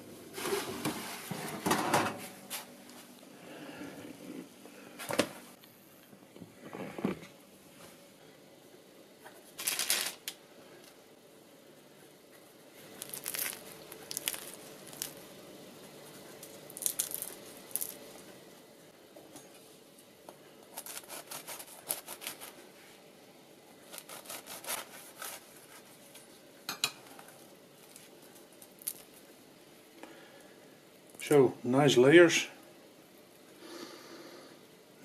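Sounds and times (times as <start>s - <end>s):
croissant crust crackling: 9.2s - 11.0s, 12.4s - 18.6s, 20.6s - 22.9s, 23.6s - 29.4s
knife sawing through crust: 20.8s - 22.6s, 23.9s - 25.9s.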